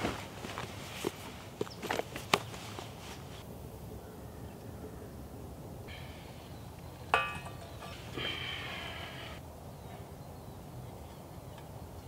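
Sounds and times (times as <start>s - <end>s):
metal pot clanking: 7.1s - 8.0s.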